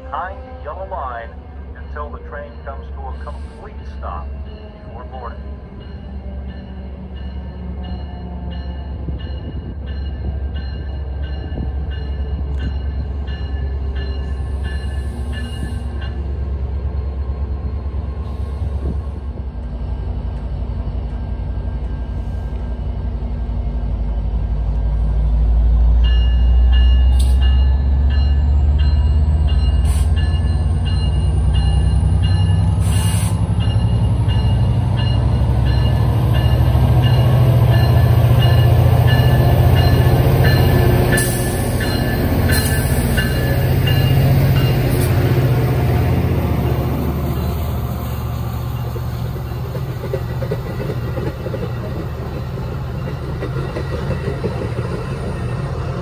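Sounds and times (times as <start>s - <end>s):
diesel locomotive engine rumble: 0.0s - 56.0s
locomotive bell ringing: 0.1s - 17.9s, 26.0s - 49.9s, 51.0s - 56.0s.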